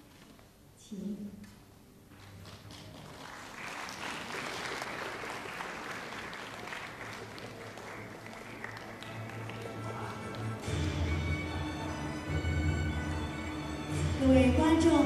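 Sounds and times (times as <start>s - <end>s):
audience applauding: 2.1s - 13.7s.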